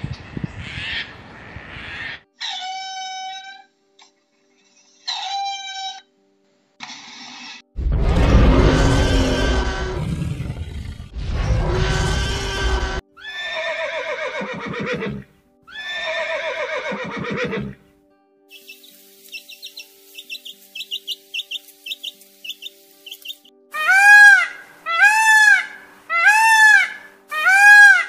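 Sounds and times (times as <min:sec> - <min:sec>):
creature roar sound effect: 0:07.8 - 0:13.0
horse whinnies: 0:11.4 - 0:17.8
chick peeping: 0:18.5 - 0:23.5.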